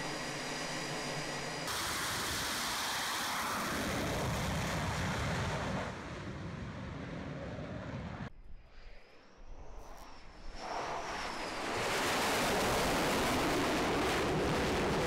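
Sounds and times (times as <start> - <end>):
jet engine roar: 0.0 - 15.0
jet engine whine: 0.0 - 15.0.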